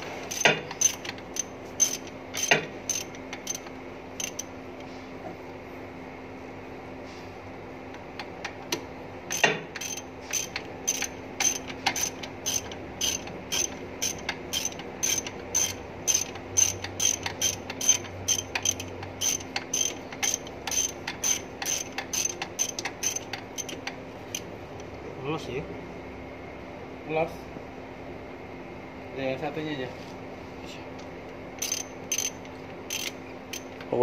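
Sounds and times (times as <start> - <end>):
ratchet wrench clicking: 0.3 - 4.5, 9.3 - 24.5, 31.6 - 33.9.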